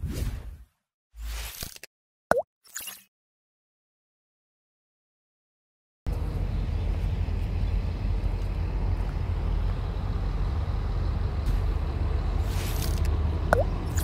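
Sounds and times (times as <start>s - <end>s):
heavy vehicle engines idling: 6.1s - 14.0s.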